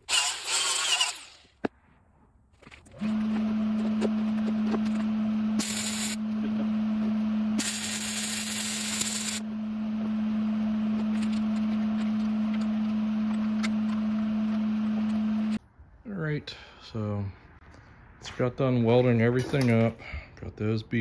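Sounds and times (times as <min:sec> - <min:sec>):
electric arc welding buzzing hiss: 0:05.6 - 0:06.2, 0:07.6 - 0:09.4.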